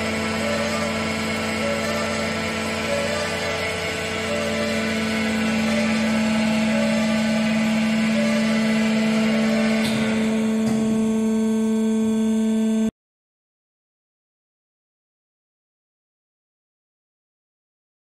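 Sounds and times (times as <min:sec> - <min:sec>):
band saw motor humming: 0:00.0 - 0:12.9.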